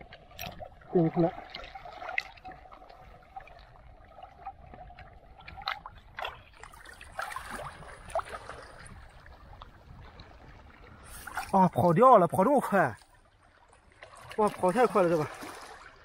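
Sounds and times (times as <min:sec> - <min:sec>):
seawater sloshing and trickling: 0:00.0 - 0:16.0.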